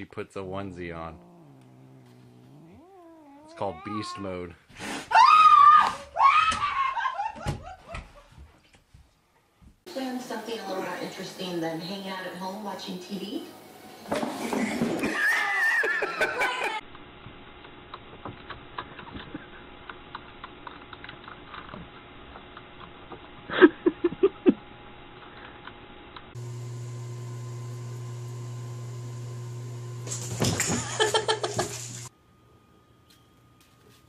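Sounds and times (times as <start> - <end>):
steady low hum: 0.0 - 3.9
laughter: 6.6 - 8.4, 14.5 - 16.8, 23.5 - 24.6, 30.6 - 31.8.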